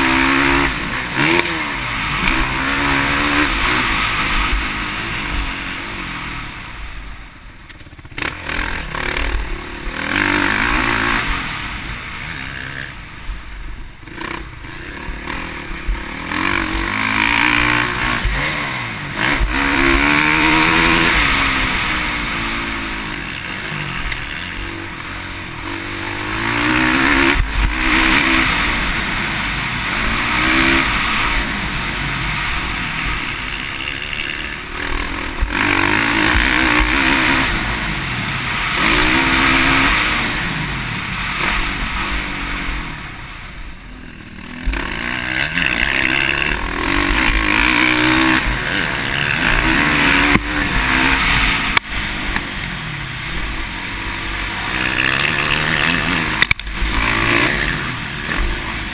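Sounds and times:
motocross bike engine revving: 0:00.0 - 0:58.9.

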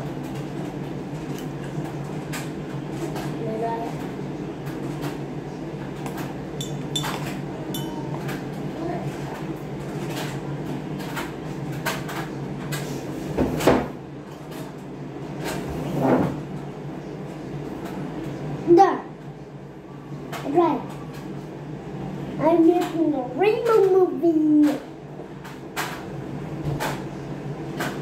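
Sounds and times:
steady low hum: 0:00.0 - 0:10.8
kitchen clicks and knocks: 0:06.1 - 0:08.4.

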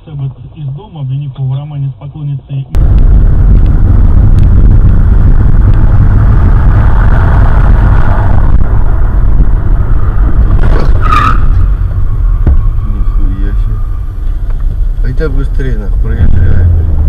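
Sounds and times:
car road and engine rumble: 0:00.0 - 0:17.0
car collision crash: 0:10.4 - 0:12.9.

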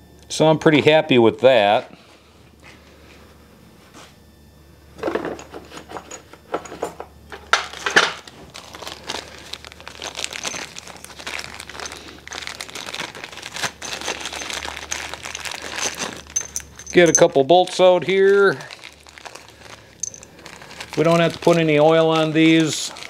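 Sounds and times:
plastic bag crinkling: 0:07.7 - 0:23.0.

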